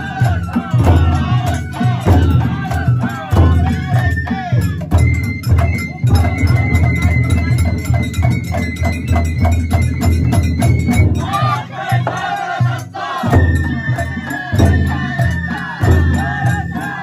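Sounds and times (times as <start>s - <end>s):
crowd shouting: 0.0s - 4.6s, 11.2s - 17.0s
drums beating fast: 0.0s - 17.0s.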